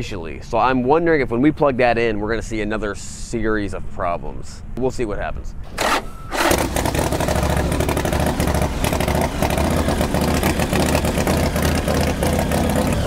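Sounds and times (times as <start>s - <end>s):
motorcycle engine running: 6.4s - 13.0s.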